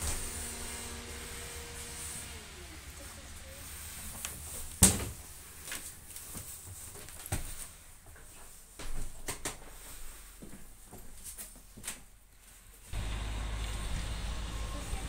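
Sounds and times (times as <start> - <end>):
footsteps on wooden floorboards: 4.0 - 9.8.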